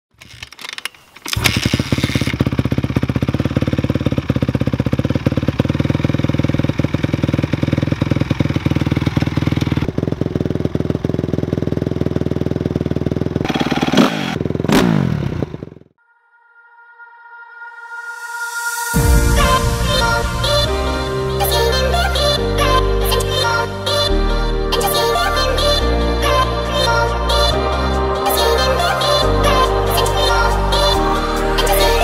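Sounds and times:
dirt bike engine revving and idling: 0:01.4 - 0:15.9.

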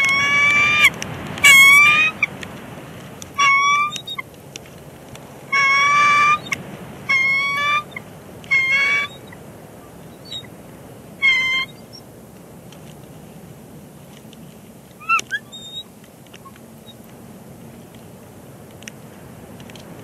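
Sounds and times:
eagles piping chatter calls: 0:00.0 - 0:02.4, 0:03.3 - 0:04.3, 0:05.5 - 0:12.2, 0:14.9 - 0:17.1.

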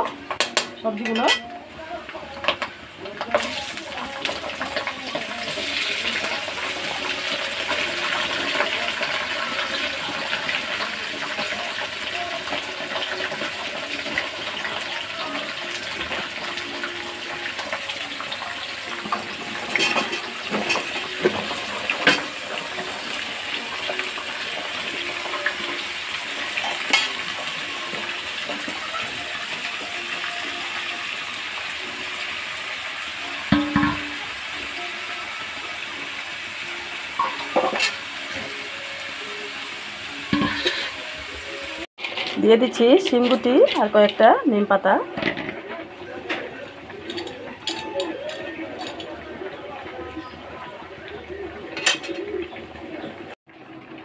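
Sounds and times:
vegetables sizzling in hot oil: 0:00.0 - 0:49.1
utensil clattering on pan: 0:19.0 - 0:22.4, 0:26.6 - 0:27.3, 0:33.5 - 0:34.2, 0:40.3 - 0:41.0.

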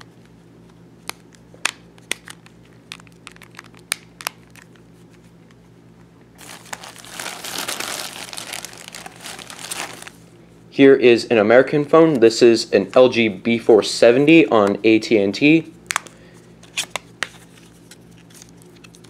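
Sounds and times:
plastic bag crinkling: 0:02.9 - 0:04.6, 0:06.4 - 0:10.3.

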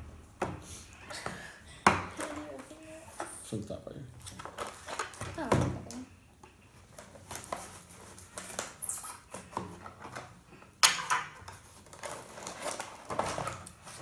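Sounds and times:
knife scraping packing tape: 0:08.3 - 0:09.5.

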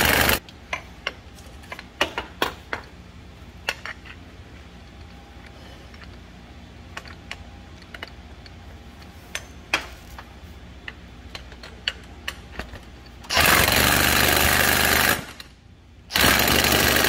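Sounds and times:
power wrench rattling: 0:00.0 - 0:02.9, 0:11.3 - 0:15.5, 0:16.1 - 0:17.0
tools tapping on metal: 0:03.6 - 0:04.2.

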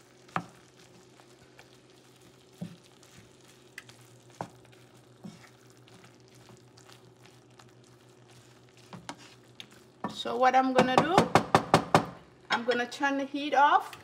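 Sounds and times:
faint sizzle of hot sauce: 0:00.0 - 0:11.2
spatula pressing food in sauce: 0:00.1 - 0:10.2
spatula knocking against pan: 0:10.0 - 0:12.2.

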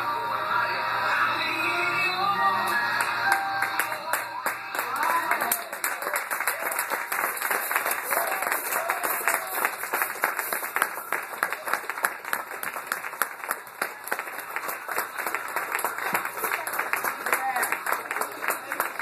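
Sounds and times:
audience applauding: 0:02.6 - 0:19.0.

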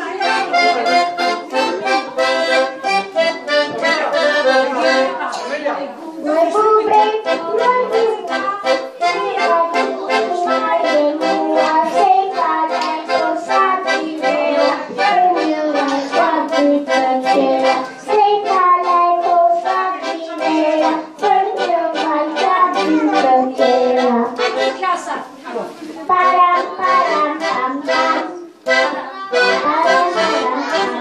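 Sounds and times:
instrumental music with steady beat: 0:00.0 - 0:05.4, 0:06.5 - 0:25.1, 0:26.2 - 0:31.0
child singing into a microphone: 0:06.2 - 0:24.6, 0:26.1 - 0:31.0.

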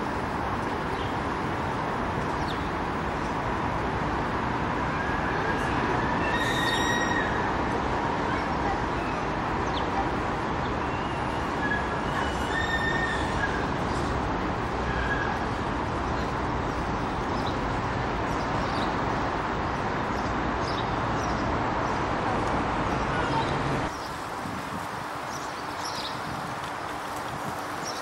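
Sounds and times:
distant traffic hum: 0:00.0 - 0:28.0.

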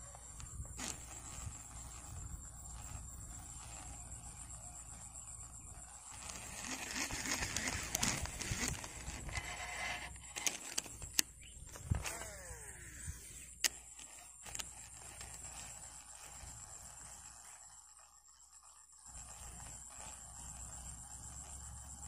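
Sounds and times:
fishing reel spool whine: 0:00.0 - 0:22.0
fishing reel clicks: 0:06.0 - 0:18.0.

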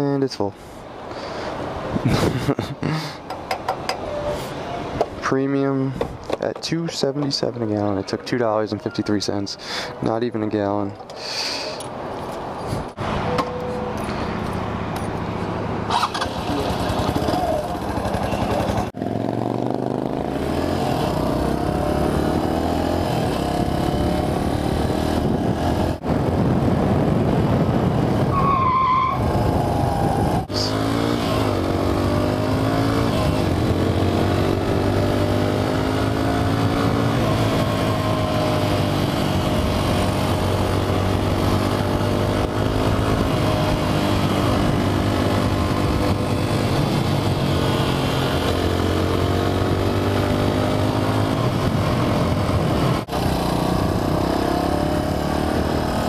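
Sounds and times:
motorcycle engine accelerating: 0:15.9 - 0:28.3, 0:29.2 - 0:56.0.

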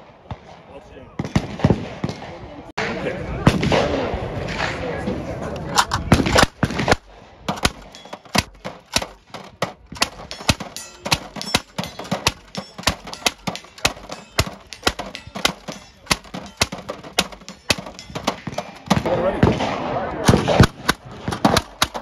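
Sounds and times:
gatling gun firing: 0:05.8 - 0:22.0.

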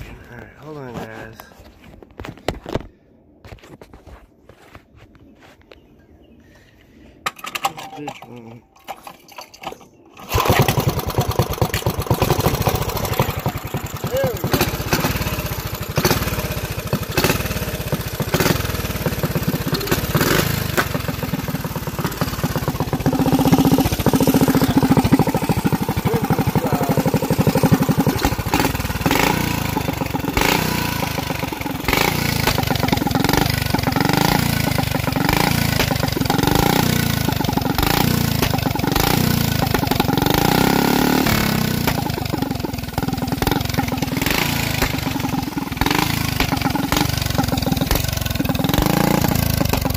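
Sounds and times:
small engine revving: 0:10.1 - 0:49.9.

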